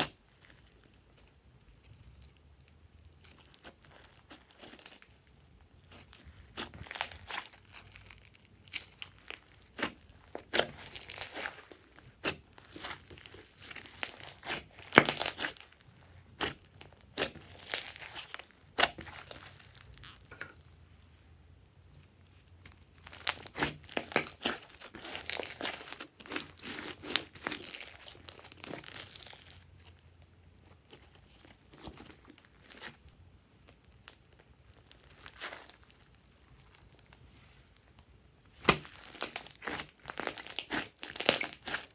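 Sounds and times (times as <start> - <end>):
slime popping and squelching: 0.0 - 20.4, 22.5 - 29.9, 38.5 - 41.9.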